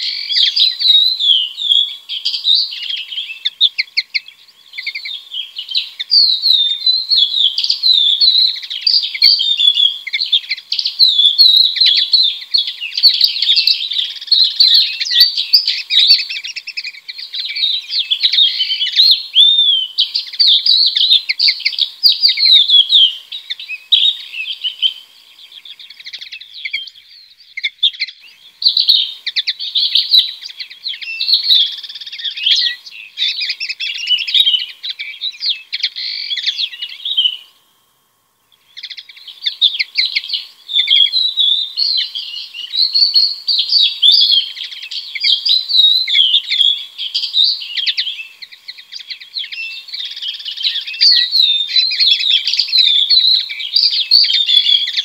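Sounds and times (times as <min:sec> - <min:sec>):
songbirds twittering and chirping: 0:00.0 - 0:55.0.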